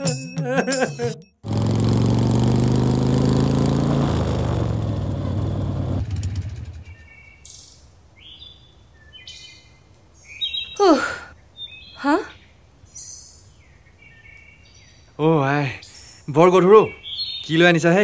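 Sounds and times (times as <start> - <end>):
motorcycle engine running: 1.4 - 7.0
birds chirping: 4.8 - 18.0.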